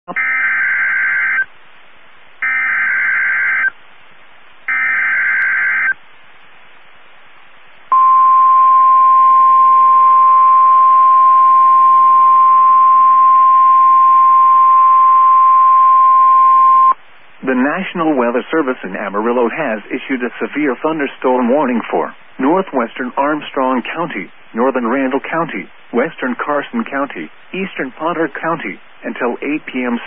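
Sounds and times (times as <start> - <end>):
single-pitch warning alarm tone: 2.4 - 3.7, 4.7 - 6.0, 7.9 - 17.0
radio hiss: 16.9 - 30.0.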